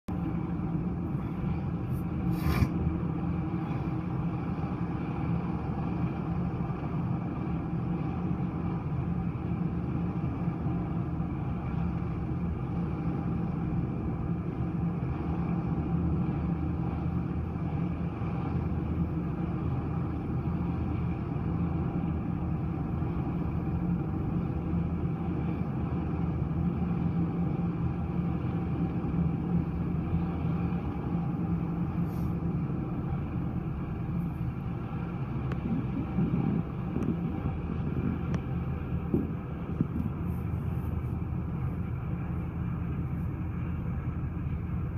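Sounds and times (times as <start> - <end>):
helicopter hovering: 18.9 - 44.9.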